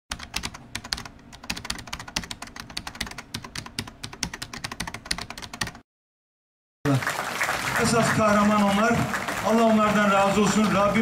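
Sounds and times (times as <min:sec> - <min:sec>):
computer keyboard typing: 0:00.1 - 0:05.8.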